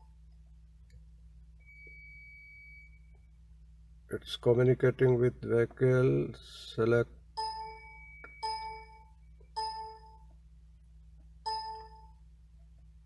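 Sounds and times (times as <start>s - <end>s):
steady low hum: 0.0s - 13.0s
electronic chime dinging: 7.4s - 10.2s, 11.5s - 12.2s.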